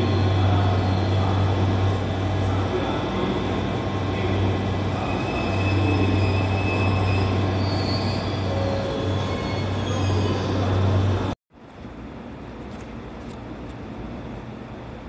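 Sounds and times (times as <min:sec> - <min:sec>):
train wheel squeals: 0:00.0 - 0:01.6, 0:05.0 - 0:11.1
train rumbling on track: 0:00.0 - 0:15.0.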